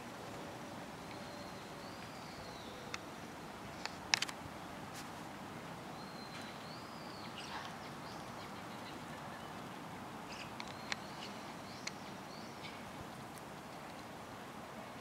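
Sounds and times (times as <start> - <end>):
steady outdoor hiss: 0.0 - 15.0
high whistled birdsong: 1.0 - 3.1, 5.9 - 9.6, 10.3 - 12.9
sharp clicks: 3.8 - 4.4.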